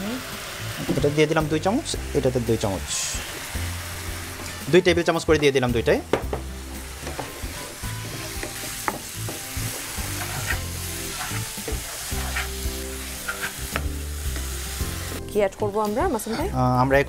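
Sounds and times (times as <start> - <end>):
halwa sizzling in frying pans: 0.0 - 16.9
wooden spatula scraping pan: 7.0 - 13.8.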